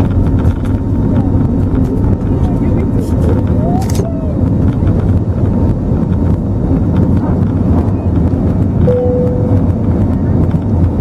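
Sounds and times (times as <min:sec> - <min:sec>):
airflow noise: 0:00.0 - 0:11.0
jet engine low rumble: 0:00.0 - 0:11.0
short steady tone: 0:08.8 - 0:09.8.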